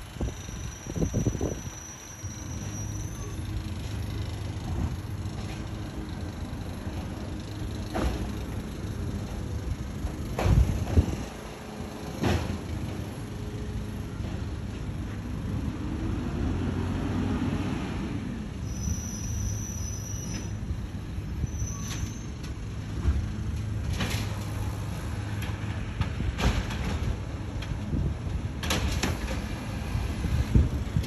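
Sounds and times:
recycling truck running: 0:00.0 - 0:31.0
high squeal: 0:00.2 - 0:03.7, 0:18.6 - 0:20.7, 0:21.3 - 0:22.4.

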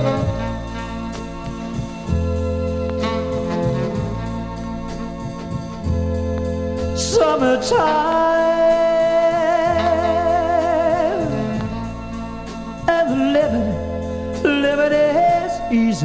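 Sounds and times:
band music with held notes: 0:00.0 - 0:16.0.

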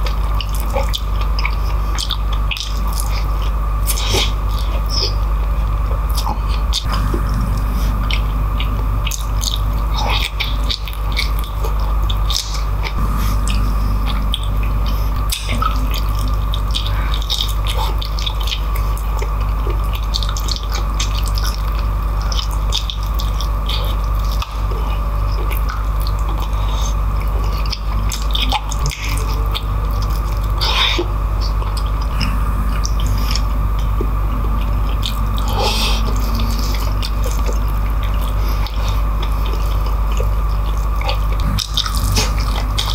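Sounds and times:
wet chewing and lip-smacking: 0:00.0 - 0:05.3
steady low hum: 0:00.0 - 0:42.9.

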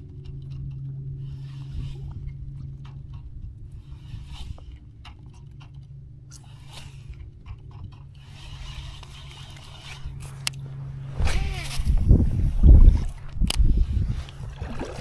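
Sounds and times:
steady low hum: 0:00.0 - 0:15.0
fishing reel clicking: 0:01.2 - 0:03.2, 0:03.8 - 0:10.6.

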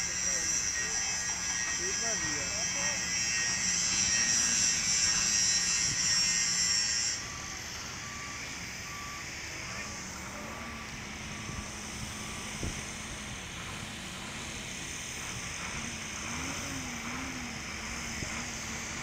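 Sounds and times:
crane engine humming: 0:00.0 - 0:19.0
warning alarm beeps: 0:07.2 - 0:12.6.

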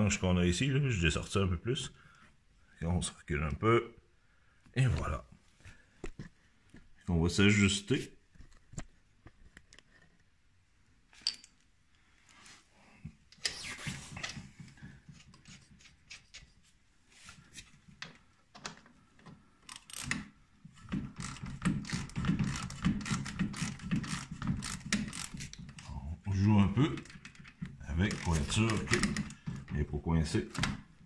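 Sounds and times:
ratchet wrench clicks: 0:19.7 - 0:20.2.

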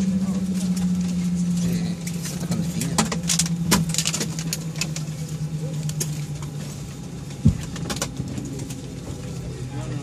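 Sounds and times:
airliner cabin hum: 0:00.0 - 0:10.0.

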